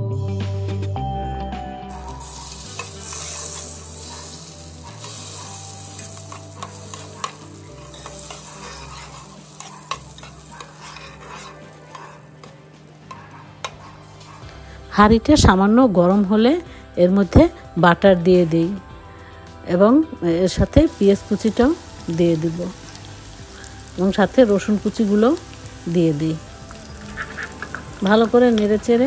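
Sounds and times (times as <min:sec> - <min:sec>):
butter sizzling in a pot: 0:01.9 - 0:14.5, 0:20.5 - 0:29.0.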